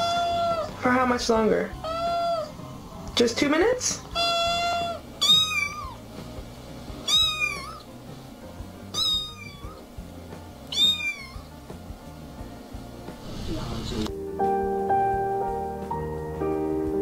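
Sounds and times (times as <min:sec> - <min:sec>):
cat meowing: 0:00.0 - 0:00.8, 0:01.8 - 0:02.6, 0:04.1 - 0:06.0, 0:07.0 - 0:07.9, 0:08.9 - 0:09.8, 0:10.7 - 0:11.6.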